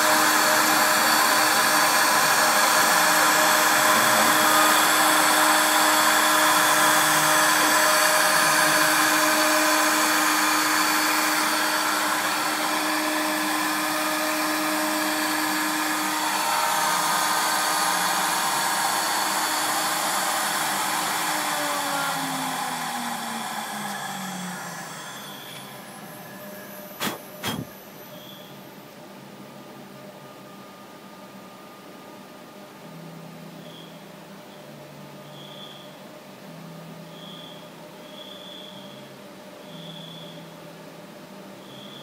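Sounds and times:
router spindle whine cutting wood: 0.0 - 28.4.

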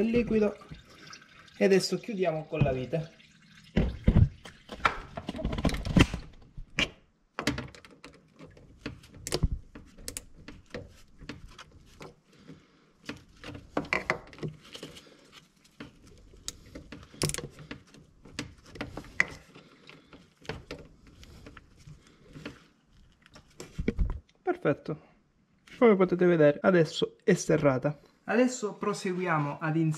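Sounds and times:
screw clicks and scrapes: 7.8 - 12.2, 13.0 - 23.7.

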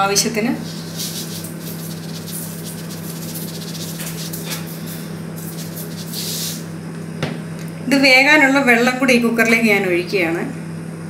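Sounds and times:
steady low hum: 0.0 - 11.0
salt grains falling hiss: 0.6 - 6.7.

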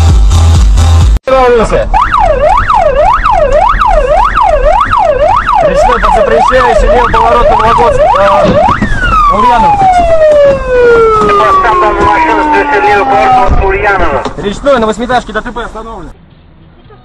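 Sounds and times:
emergency siren wailing: 1.9 - 14.4.

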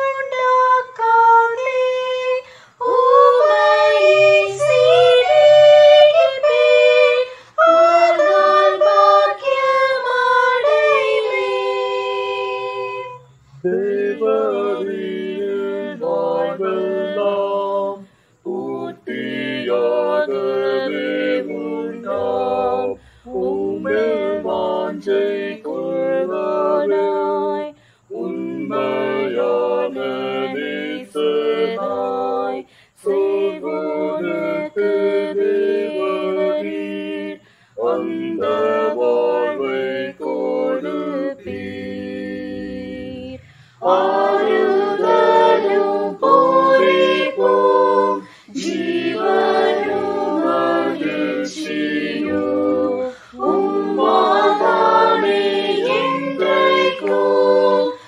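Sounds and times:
mixed choir singing a hymn: 0.0 - 58.0
singers breathing: 2.4 - 2.8, 7.3 - 7.6, 18.0 - 18.4, 23.0 - 23.3, 27.8 - 28.1, 32.7 - 33.0, 37.4 - 37.8, 43.4 - 43.8, 48.2 - 48.6, 53.1 - 53.4.

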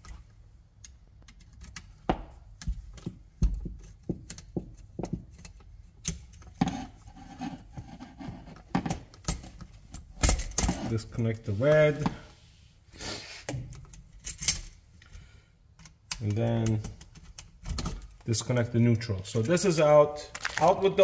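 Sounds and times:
screwdriver metal clicks and knocks: 0.8 - 6.6.

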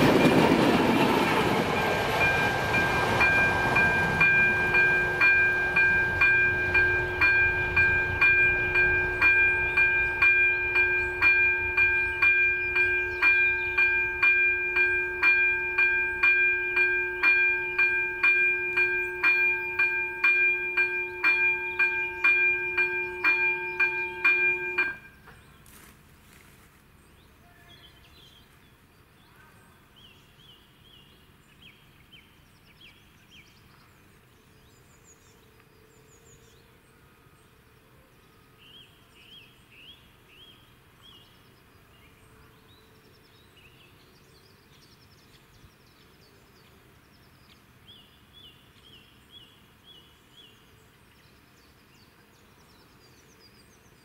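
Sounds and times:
level-crossing warning bell: 0.0 - 25.3
birds chirping: 0.0 - 25.8.

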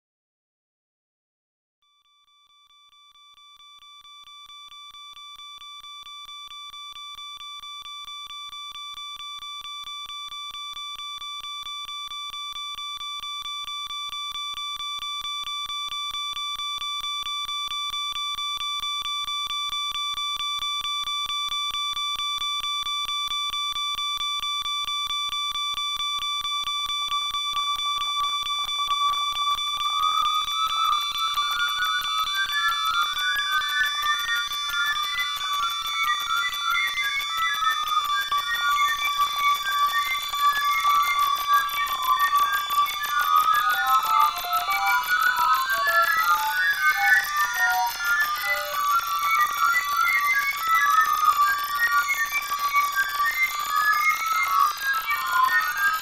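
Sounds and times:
alarm clock beeping: 26.6 - 56.0.

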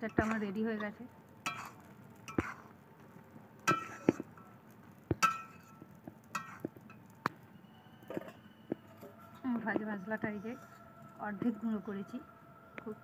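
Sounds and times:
metal spatula clinking on pan: 0.0 - 2.7, 3.7 - 4.6, 5.2 - 7.0.

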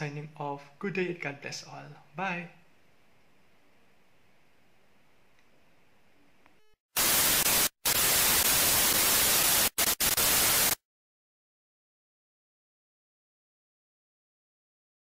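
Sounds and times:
tv static white noise: 6.9 - 10.8.

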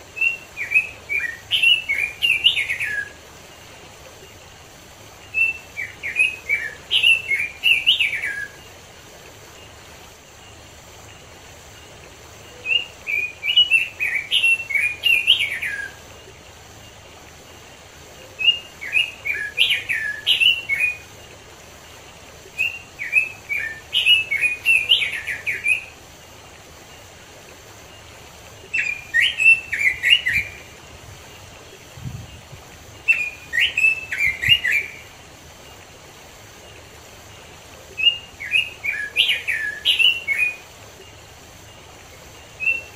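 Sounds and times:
stream water hiss: 0.0 - 42.9
bird singing whistled phrases: 0.2 - 3.2, 5.3 - 8.6, 12.6 - 16.0, 18.3 - 21.0, 22.6 - 25.9, 28.7 - 30.6, 33.1 - 35.0, 38.0 - 40.6, 42.6 - 42.9.

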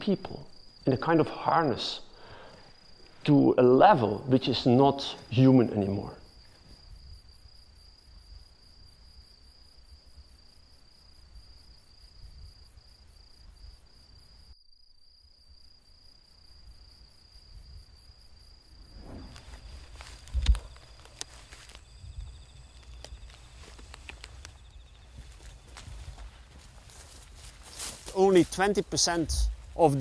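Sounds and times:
crickets trilling: 0.0 - 30.0
rustling: 18.9 - 30.0.

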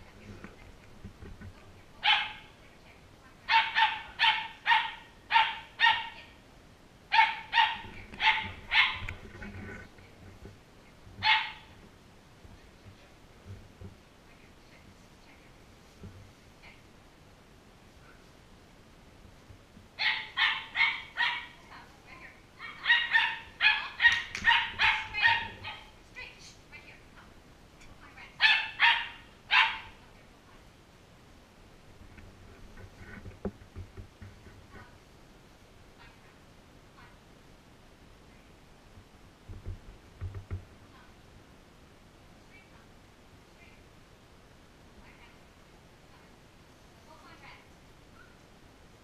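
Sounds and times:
dog barking: 2.0 - 2.5, 3.5 - 6.3, 7.1 - 9.1, 11.2 - 11.7, 20.0 - 21.6, 22.6 - 25.9, 28.4 - 30.0.

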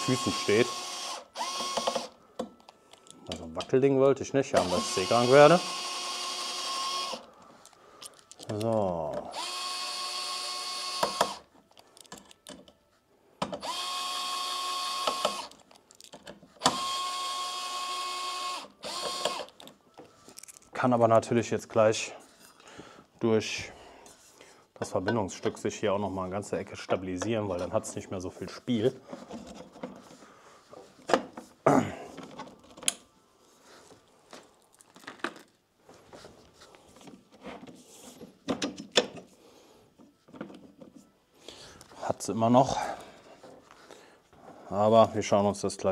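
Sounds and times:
cordless screwdriver motor whine: 0.0 - 2.2, 4.6 - 7.3, 9.3 - 11.5, 13.6 - 15.6, 16.6 - 19.6
metal parts clacking together: 7.6 - 8.9, 11.7 - 12.7, 15.2 - 16.4, 19.5 - 20.8.

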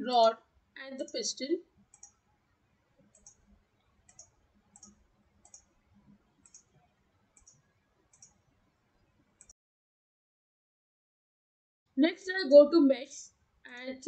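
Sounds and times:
faint computer mouse clicks: 1.9 - 2.2, 3.0 - 8.5.

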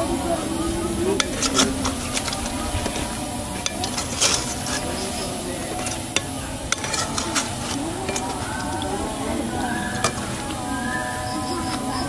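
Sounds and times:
food deep-frying in oil: 0.0 - 12.0
wire skimmer clicking on pan: 1.2 - 10.6.

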